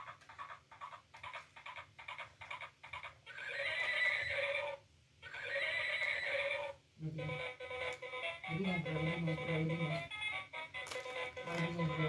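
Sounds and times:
recorded horse neighs: 3.3 - 6.8.

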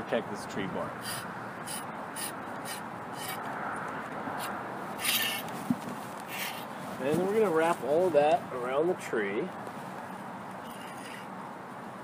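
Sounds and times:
steady background hiss: 0.0 - 12.0
cable tubing rubbing and scraping: 1.0 - 3.5, 4.4 - 7.9, 10.6 - 11.3.

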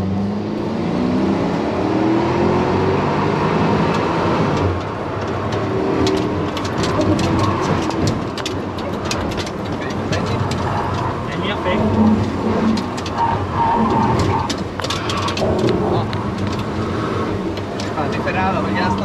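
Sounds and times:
car engine accelerating: 0.0 - 19.0
road and tyre noise: 0.0 - 19.0
sharp ticks and rattles: 4.6 - 16.8.

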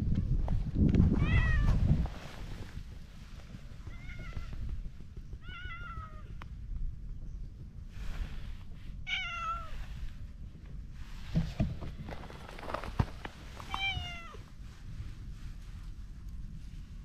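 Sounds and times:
low rustling: 0.3 - 5.5
cat meowing: 5.4 - 6.3, 9.1 - 9.8, 13.7 - 14.4.

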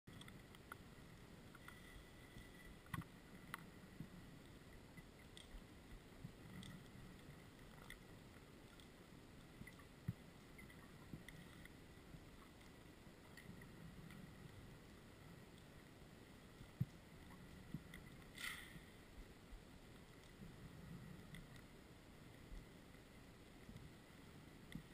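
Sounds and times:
small clicks: 0.1 - 3.8, 4.4 - 14.5, 19.9 - 21.7
faint low underwater rumble: 0.1 - 24.9
faint steady whine: 0.1 - 24.9.

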